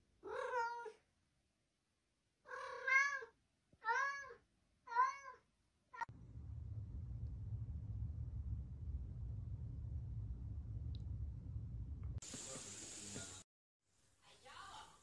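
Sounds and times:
cat meowing: 2.5 - 5.4.

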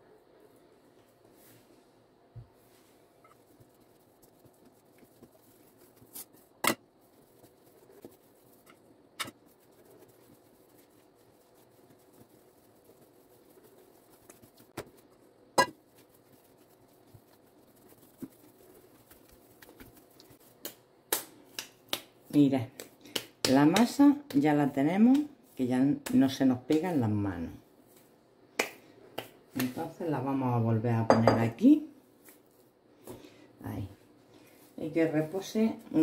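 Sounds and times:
faint steady hum: 0.0 - 36.0
dough knocked and slapped on stone: 20.6 - 25.3, 28.6 - 29.8.

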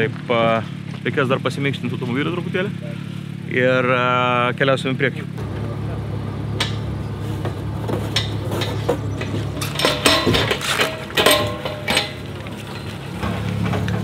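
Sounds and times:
metallic clanks of hand pump: 6.6 - 14.0.

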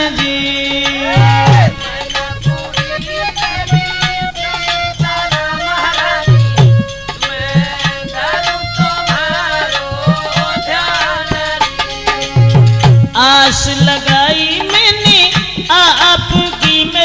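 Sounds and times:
hand drums beating: 0.0 - 17.0
wavering melody line: 0.7 - 7.0.

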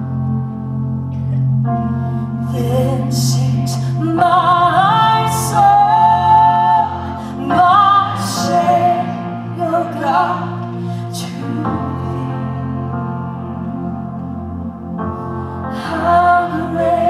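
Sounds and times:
sustained backing chords: 0.0 - 17.0
woman singing into a microphone: 2.4 - 13.5, 15.6 - 17.0.

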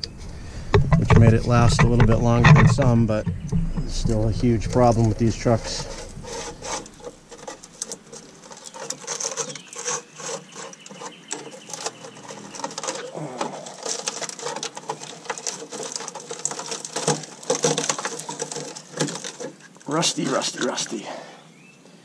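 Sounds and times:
rusted sheet metal crackling and crunching: 0.0 - 21.0.

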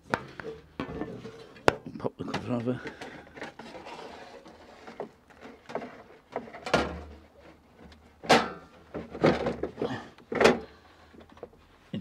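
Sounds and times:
sheet metal scraping: 2.9 - 7.6.

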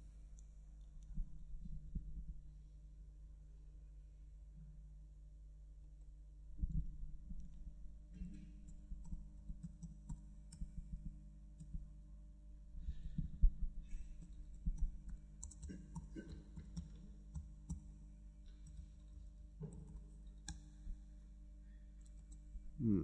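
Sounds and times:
laptop keys typing: 8.6 - 11.9, 14.1 - 17.9, 18.5 - 20.8, 22.0 - 22.5.

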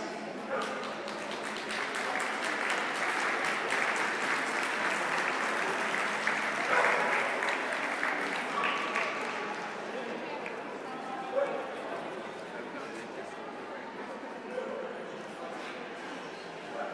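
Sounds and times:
audience applauding: 0.6 - 10.8.

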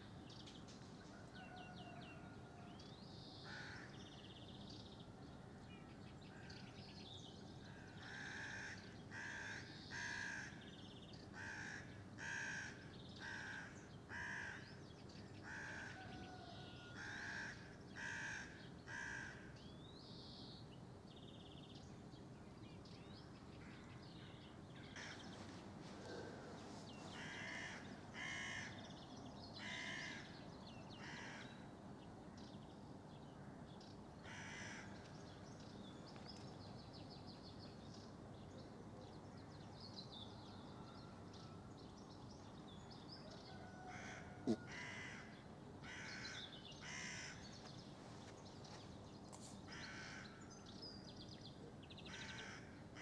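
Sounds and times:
crow cawing: 3.4 - 3.9, 8.0 - 10.6, 11.4 - 14.6, 15.4 - 19.5, 24.9 - 25.2, 27.1 - 28.8, 29.6 - 30.3, 34.2 - 34.9, 43.7 - 47.4, 49.7 - 50.4, 52.1 - 52.7.

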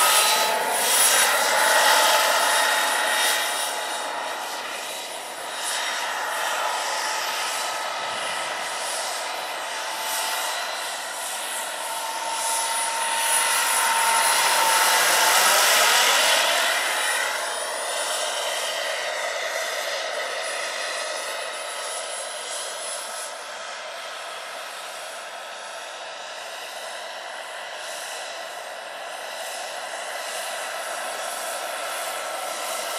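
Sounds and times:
helicopter rotors rushing: 0.0 - 23.3
turbine whine: 0.0 - 32.9.

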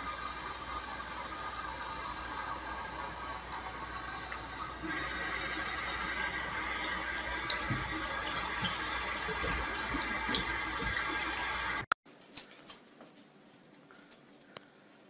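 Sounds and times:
tap water pouring into sink: 0.0 - 11.9.

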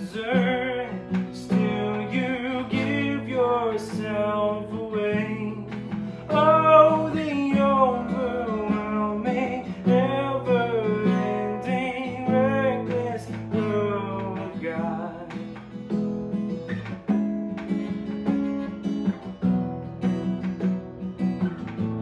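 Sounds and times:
man singing: 0.0 - 15.7
acoustic guitar worship song: 0.0 - 22.0.

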